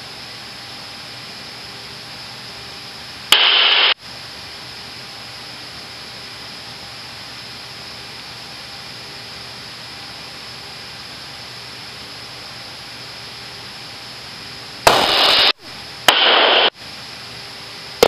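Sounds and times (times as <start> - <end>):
loud burst of static: 3.3 - 4.0, 14.9 - 16.8
steady intercom hiss: 3.3 - 4.0.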